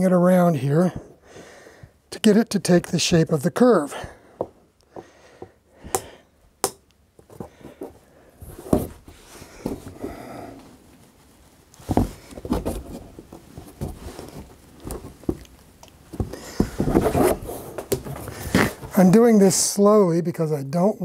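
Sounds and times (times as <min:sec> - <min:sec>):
hardboard sheet bending and creaking: 0:16.1 - 0:19.6.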